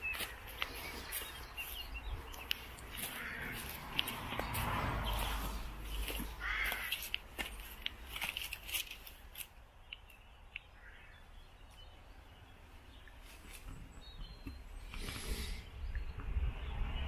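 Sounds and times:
footsteps through undergrowth: 0.0 - 9.7
crows cawing: 2.9 - 4.3, 6.0 - 7.4, 10.7 - 11.3.

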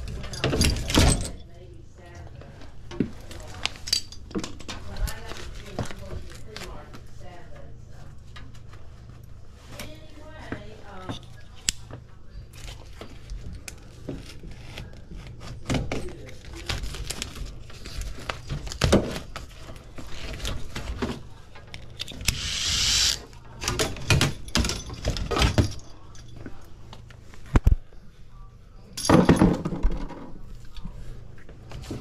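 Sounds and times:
short rushing hiss: 22.3 - 23.2.

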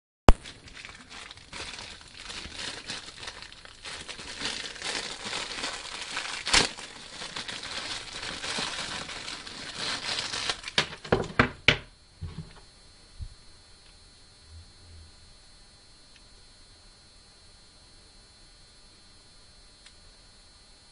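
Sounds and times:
plastic packaging crinkling: 0.3 - 11.6.

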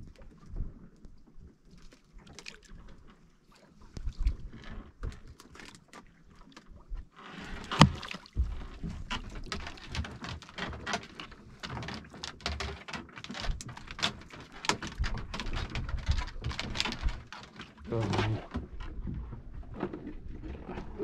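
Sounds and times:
water slapping against hull: 1.7 - 21.0
gear knocking and clicking: 7.7 - 18.3.

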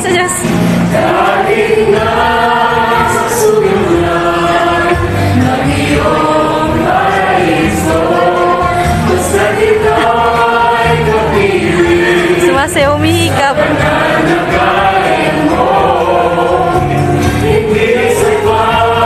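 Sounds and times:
choir singing: 0.8 - 19.0.

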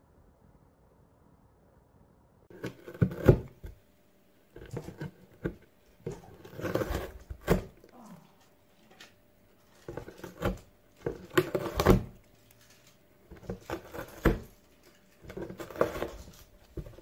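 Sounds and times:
cat ripping cardboard: 2.5 - 3.8, 4.5 - 7.8, 9.7 - 17.0.

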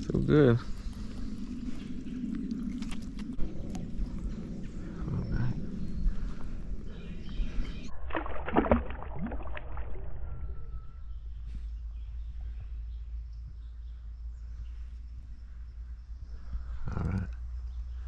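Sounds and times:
water low rumble: 0.0 - 18.0
creek water splashing: 7.9 - 10.5.

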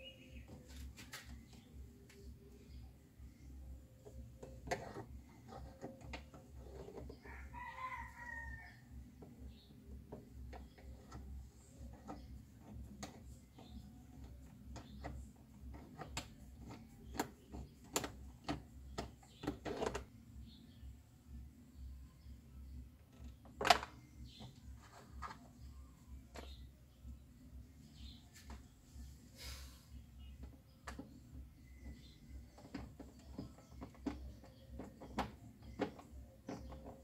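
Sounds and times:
rooster crowing: 7.2 - 8.9.

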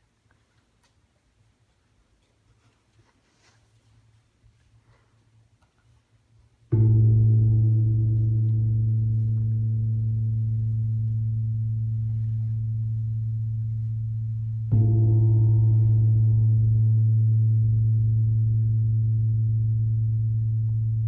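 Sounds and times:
low metal percussion ringing: 6.7 - 21.0.

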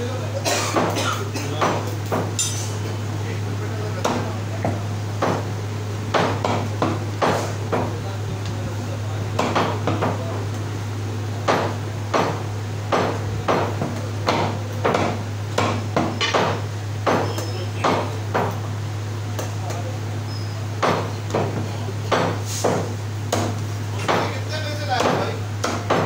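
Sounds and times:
steady low hum: 0.0 - 26.0
cleaver chopping on wooden block: 11.4 - 18.6, 20.8 - 26.0.

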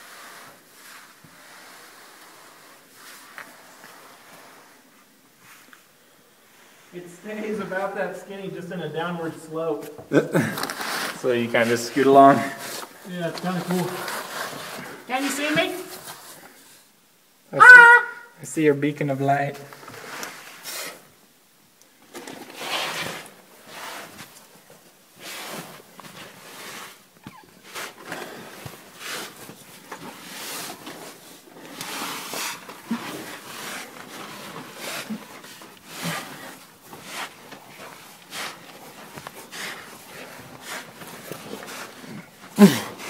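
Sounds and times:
clothing scraping against rock: 10.4 - 16.6, 22.1 - 43.0.

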